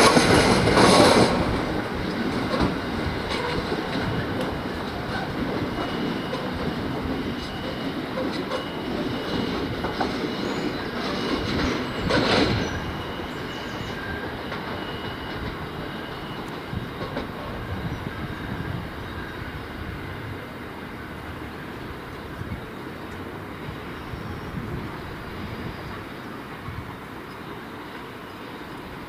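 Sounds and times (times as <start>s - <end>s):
freight train wheel clatter: 0.0s - 29.0s
wheel squeal: 2.5s - 19.7s.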